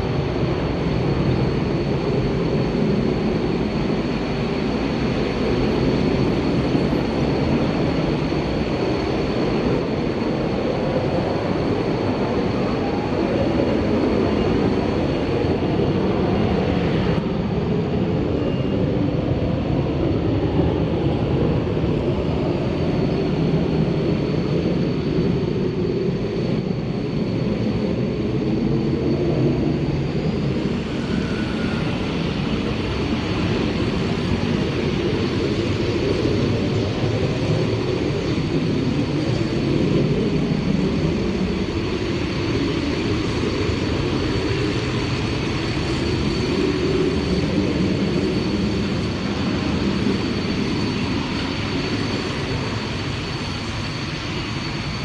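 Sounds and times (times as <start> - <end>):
jet engines rumbling: 0.0 - 55.0.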